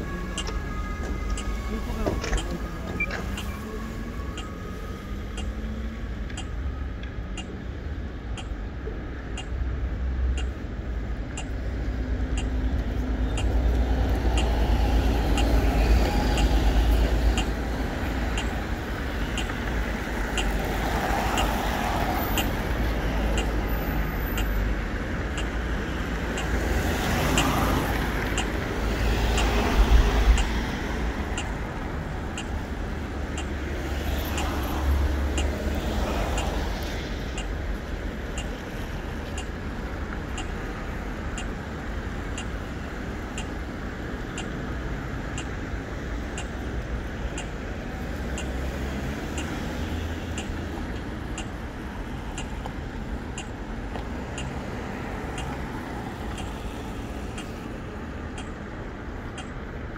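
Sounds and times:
cars and buses passing: 0:00.0 - 0:59.9
low traffic rumble: 0:00.0 - 0:59.9
faint ticking: 0:10.4 - 0:10.6, 0:44.3 - 0:44.6, 0:46.4 - 0:47.6, 0:50.3 - 0:59.9.

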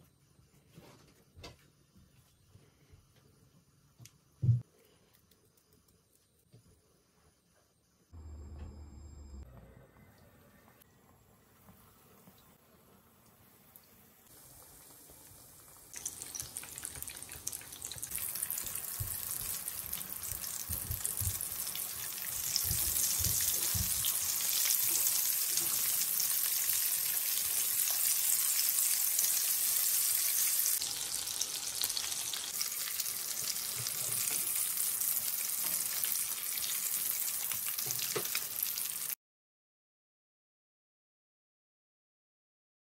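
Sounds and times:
patties sizzling in oil: 0:11.5 - 0:39.2.

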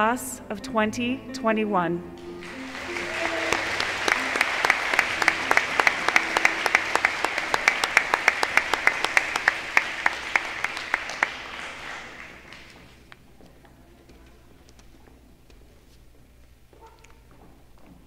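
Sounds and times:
audience applauding: 0:02.2 - 0:13.1.

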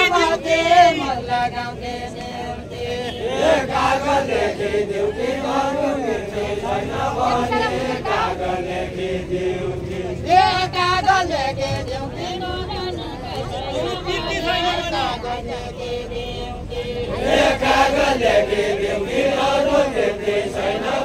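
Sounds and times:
group singing unaccompanied: 0:00.0 - 0:21.0.

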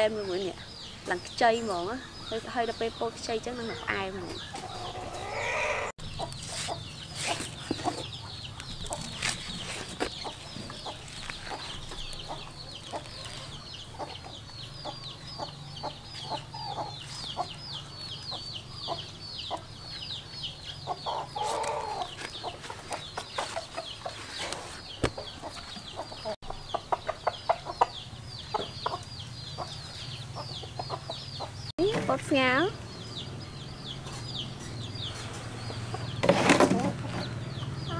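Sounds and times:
chicks peeping: 0:00.0 - 0:37.9
chicken clucking: 0:03.5 - 0:31.7.

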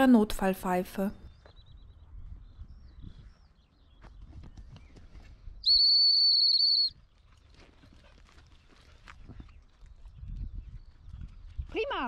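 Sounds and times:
high whistle blast: 0:05.6 - 0:07.0.

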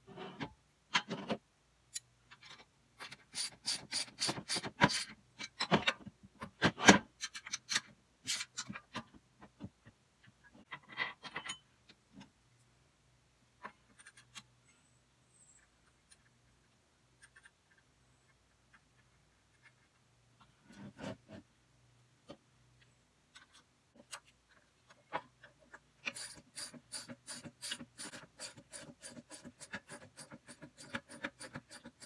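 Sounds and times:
clicks and knocks of parts: 0:04.3 - 0:12.6, 0:13.6 - 0:14.8, 0:15.6 - 0:21.1, 0:22.2 - 0:26.4.

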